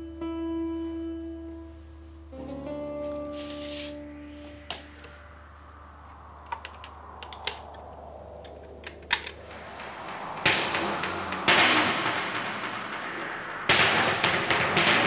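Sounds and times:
low steady hum: 0:00.0 - 0:13.8
loud rushing noise: 0:03.0 - 0:15.0.

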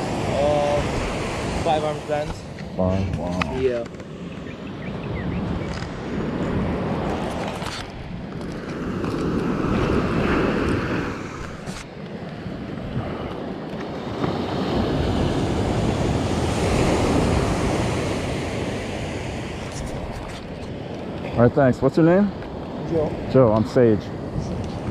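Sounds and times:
wind buffeting microphone: 0:00.0 - 0:24.9
surf breaking on beach: 0:12.6 - 0:20.2.

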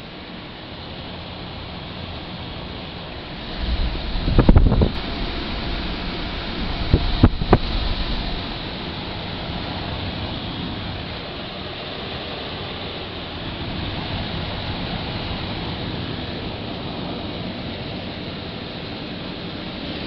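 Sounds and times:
air conditioner blowing air: 0:00.0 - 0:20.0.

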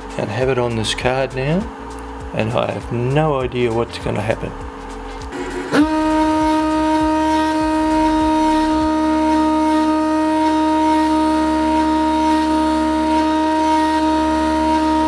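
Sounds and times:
spindle motor whining: 0:04.3 - 0:15.0
engraving bit cutting plywood: 0:05.3 - 0:15.0.

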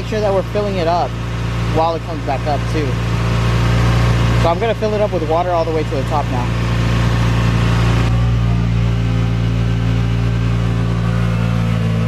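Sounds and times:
car engine idling: 0:00.0 - 0:12.0.

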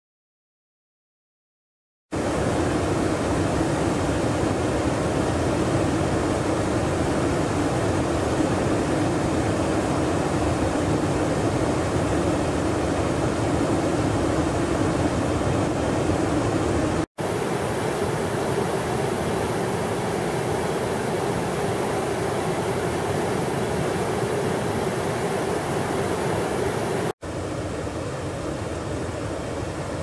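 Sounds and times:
river rapids rushing: 0:17.2 - 0:27.2.

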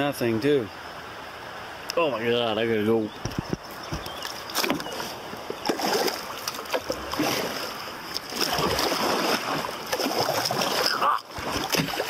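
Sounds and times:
paddle splashing in water: 0:03.2 - 0:12.0.

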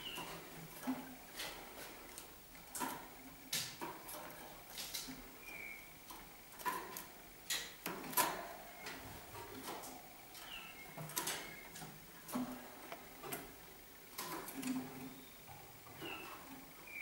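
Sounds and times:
canary chirp: 0:00.0 - 0:00.4, 0:05.4 - 0:06.0, 0:10.3 - 0:11.9, 0:14.9 - 0:17.0.

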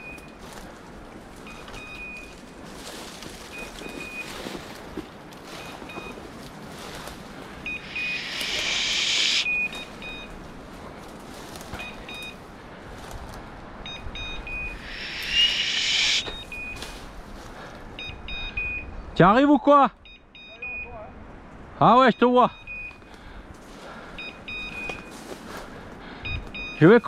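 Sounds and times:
dry brush rustling: 0:00.4 - 0:12.0
short high beeps: 0:07.6 - 0:10.3, 0:13.8 - 0:16.8, 0:26.3 - 0:26.9.

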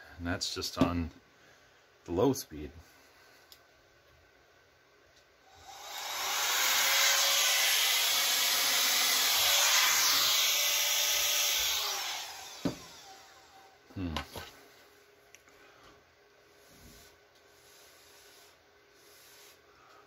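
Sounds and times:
blow dryer rushing air: 0:05.5 - 0:13.7.

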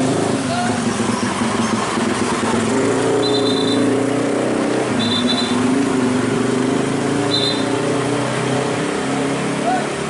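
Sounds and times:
truck diesel engine running: 0:00.0 - 0:07.9
cars passing: 0:00.0 - 0:10.0
high double-toned beep: 0:03.2 - 0:03.9, 0:05.0 - 0:05.6, 0:07.3 - 0:07.7.

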